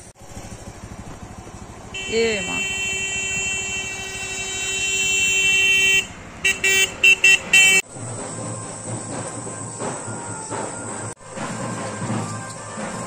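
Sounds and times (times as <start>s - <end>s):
vehicle horn: 1.9s - 7.9s.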